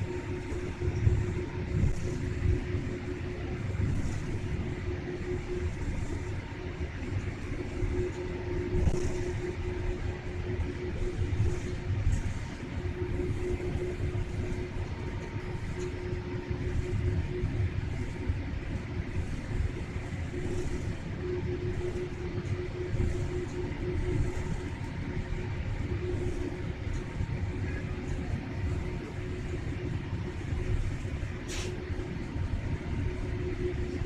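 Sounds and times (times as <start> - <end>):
aircraft cabin rumble: 0.0 - 34.0
faint hum: 0.0 - 34.0.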